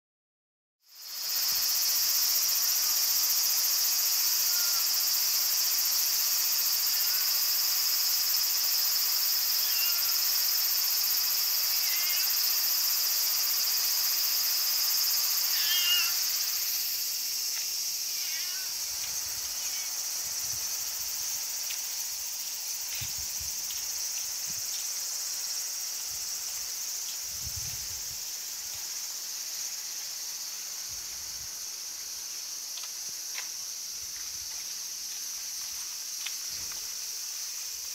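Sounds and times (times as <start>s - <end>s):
insect chorus: 0.8s - 37.9s
short chirping calls: 9.6s - 10.1s.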